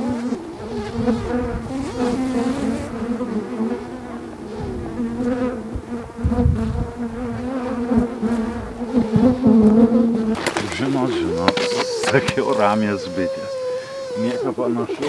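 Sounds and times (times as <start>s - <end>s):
bees buzzing: 0.0s - 15.0s.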